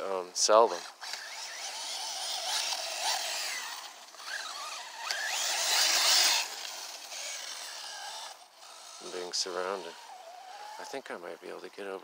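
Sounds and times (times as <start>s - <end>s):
tyres on rocky ground: 0.0s - 12.0s
electric motor whining: 0.7s - 11.0s.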